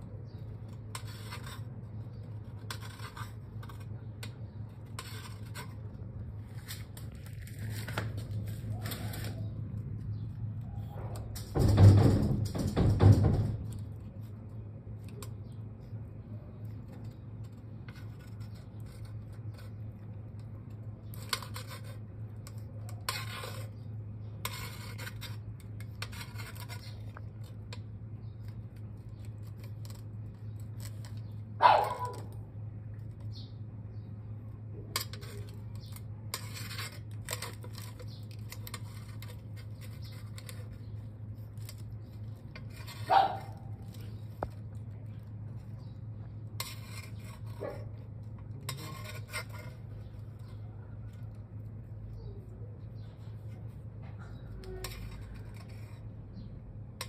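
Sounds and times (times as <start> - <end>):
shell scraping on metal pipe: 0.2 - 10.4, 11.0 - 32.4, 33.2 - 51.4, 54.3 - 57.0.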